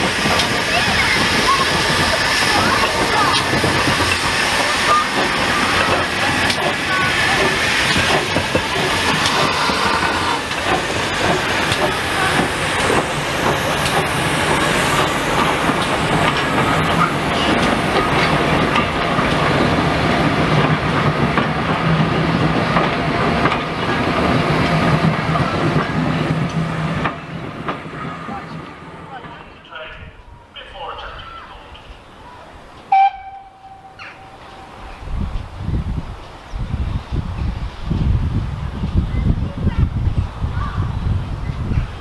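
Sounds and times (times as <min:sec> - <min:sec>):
steam hissing: 0:00.0 - 0:27.5
wheels clicking over rail joints: 0:00.0 - 0:29.7.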